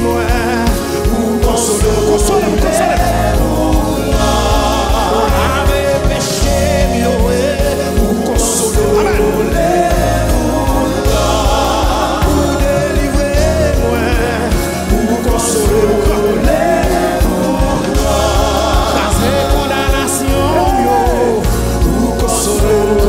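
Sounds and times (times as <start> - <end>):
backing singers: 0.0 - 23.0
band with keyboard: 0.0 - 23.0
lead singer singing: 0.0 - 23.0.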